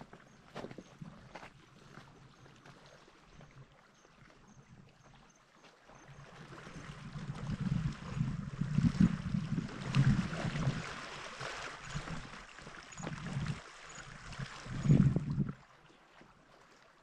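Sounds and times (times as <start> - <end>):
footsteps crunching on loose rock: 0.0 - 1.5
small waves lapping on rocks: 5.6 - 16.9.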